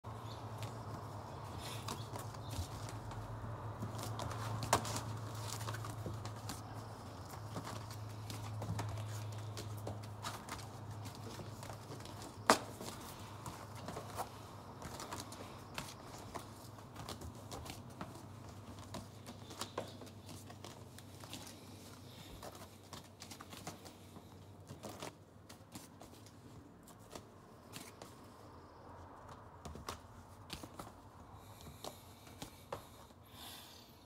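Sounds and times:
cardboard sleeves tapping and rustling: 0:00.1 - 0:33.1.

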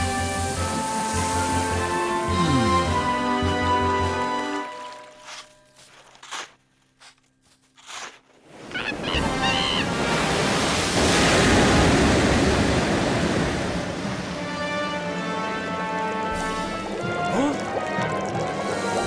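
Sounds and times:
snow swishing: 0:00.0 - 0:02.2.

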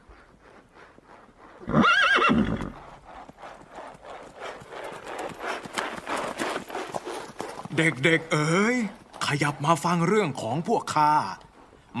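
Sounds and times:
horse hooves clip-clopping: 0:00.0 - 0:12.0
horse whinny: 0:01.6 - 0:02.9.

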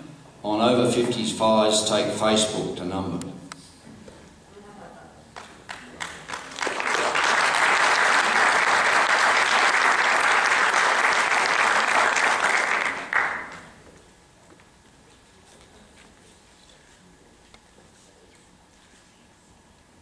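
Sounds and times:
audience applauding: 0:05.4 - 0:13.7.

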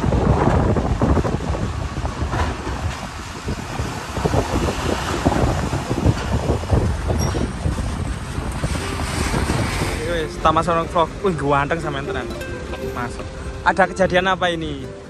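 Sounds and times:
wind buffeting microphone: 0:00.0 - 0:14.8
low rumble of vehicles: 0:00.0 - 0:15.0.

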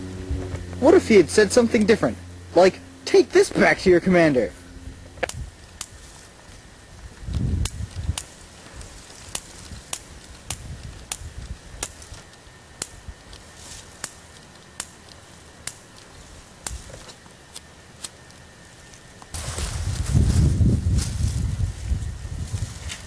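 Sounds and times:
low rumble: 0:00.0 - 0:12.2
lighter igniter clicking: 0:05.2 - 0:06.0, 0:07.4 - 0:18.4.

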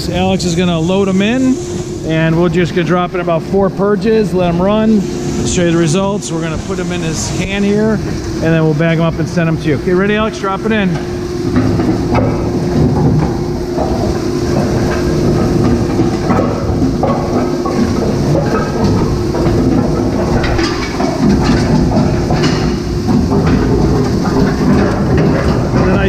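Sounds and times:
machine hum: 0:00.0 - 0:26.0
shredder knocking and crunching plastic: 0:10.1 - 0:26.0.

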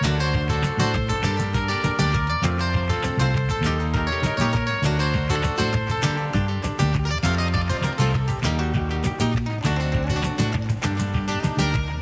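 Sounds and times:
plucked notes: 0:00.0 - 0:12.0
strummed acoustic guitar music: 0:00.0 - 0:12.0.

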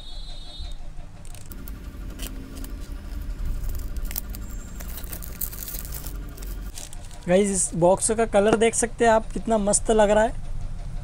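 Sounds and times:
plastic wrap crinkling: 0:01.3 - 0:07.5.

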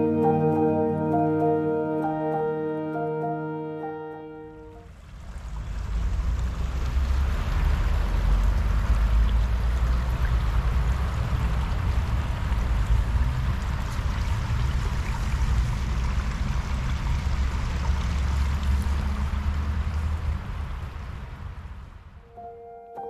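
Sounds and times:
brook babbling: 0:04.7 - 0:23.0.

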